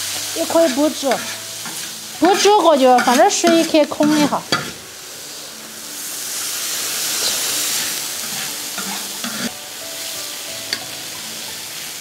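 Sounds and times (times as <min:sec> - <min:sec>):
loud sizzling hiss: 0:00.0 - 0:12.0
spatula scraping a wok: 0:00.1 - 0:05.5, 0:06.1 - 0:09.6.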